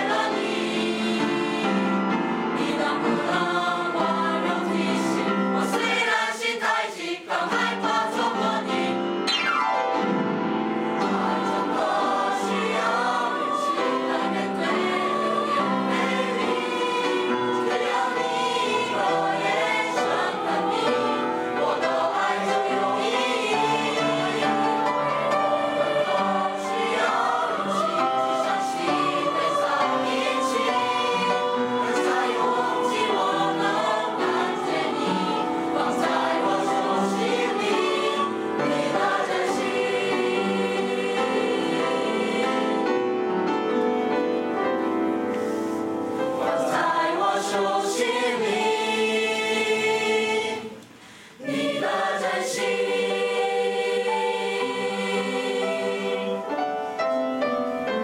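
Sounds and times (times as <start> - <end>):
choir singing: 0.0 - 58.0.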